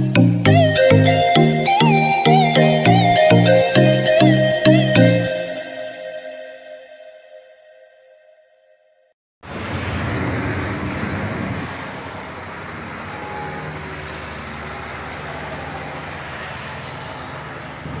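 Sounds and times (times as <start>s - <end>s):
road and traffic noise: 9.4s - 18.0s
truck engine running: 9.5s - 18.0s.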